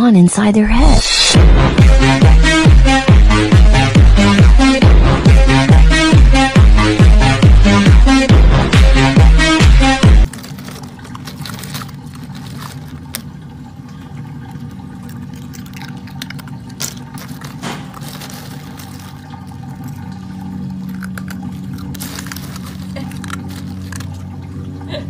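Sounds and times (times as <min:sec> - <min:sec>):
steady low hum: 0:10.1 - 0:25.0
crushed ice clinking and crunching: 0:10.2 - 0:13.7, 0:14.4 - 0:24.6.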